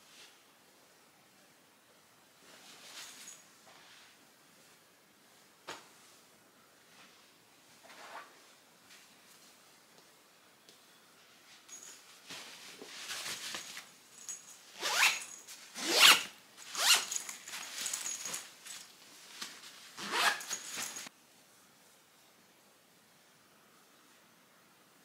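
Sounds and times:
cloth rustling: 0:11.6 - 0:21.1
zipper being pulled shut: 0:14.8 - 0:17.2, 0:20.0 - 0:21.1.

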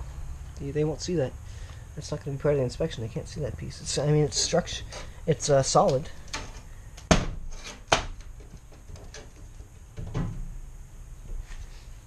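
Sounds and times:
knocks on steel frame: 0:07.1 - 0:08.2.

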